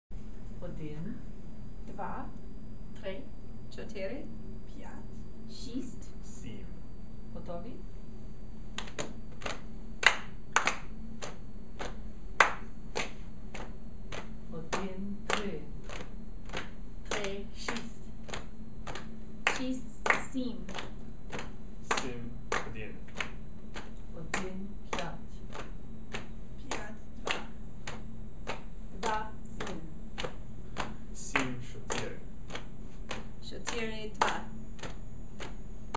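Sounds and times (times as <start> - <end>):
group clapping in rhythm: 8.8 - 35.9.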